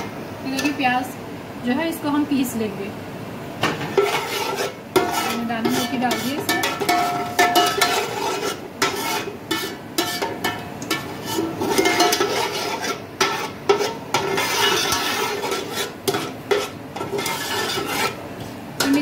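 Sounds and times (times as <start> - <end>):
metal spoon scraping a pot: 3.8 - 18.2.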